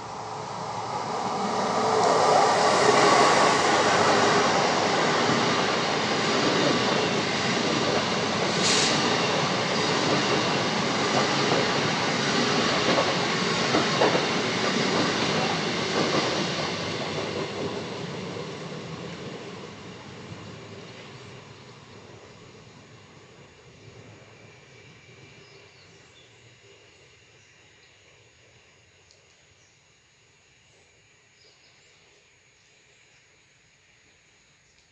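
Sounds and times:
train wheels rolling on rail: 0.0 - 26.8
brief high hiss: 8.5 - 9.3.

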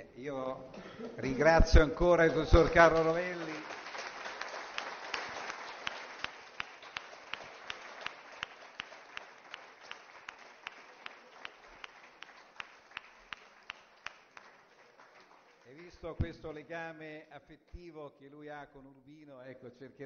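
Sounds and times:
audience applauding: 1.7 - 16.4
sharp steady hand claps: 2.6 - 16.4.

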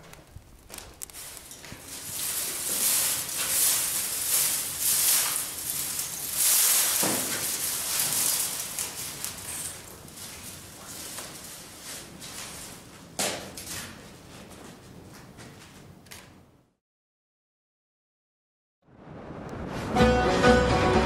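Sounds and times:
straw crackling in fire: 0.0 - 14.3
fire hissing: 0.1 - 12.8.

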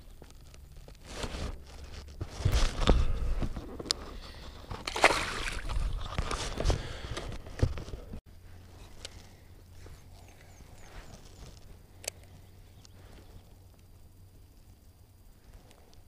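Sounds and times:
water splashing against kayak: 4.7 - 6.8.

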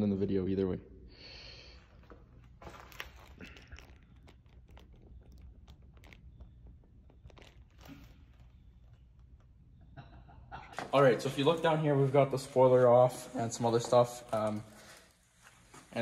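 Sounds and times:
steady low hum: 0.0 - 15.9
faint clicks and rustles: 1.8 - 11.0.

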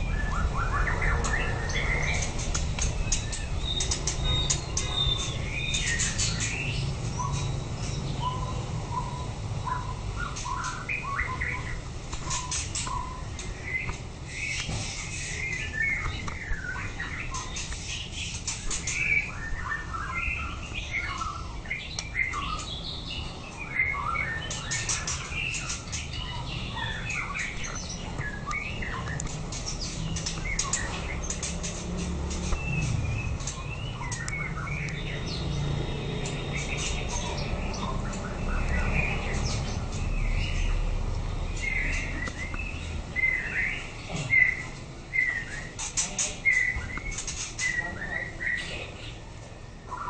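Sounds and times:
steady low hum: 0.0 - 50.0
bird singing whistled notes: 2.9 - 31.4, 41.6 - 45.8.

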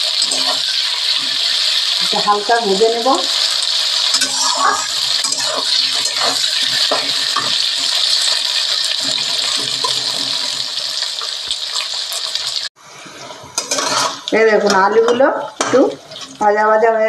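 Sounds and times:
metal spatula scraping pan: 0.0 - 10.9, 11.7 - 16.5
potatoes sizzling in oil: 0.0 - 12.8, 13.4 - 16.6.

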